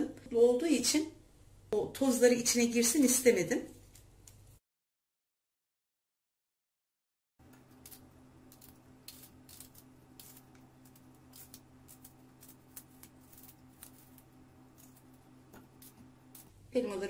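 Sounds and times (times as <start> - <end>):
steady low hum: 7.4 - 17.0
knife cutting apple: 7.5 - 16.6.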